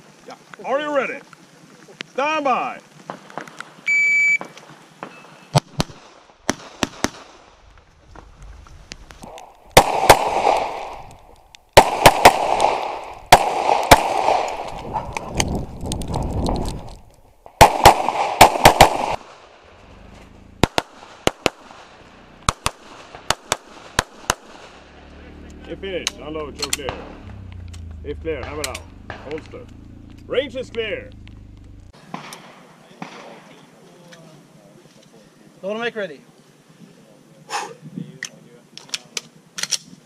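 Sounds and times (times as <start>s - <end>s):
shot timer beep: 3.9s - 4.4s
rapid pistol fire: 5.6s - 7.6s, 9.7s - 11.1s, 11.8s - 14.7s, 17.6s - 19.6s, 20.6s - 24.9s.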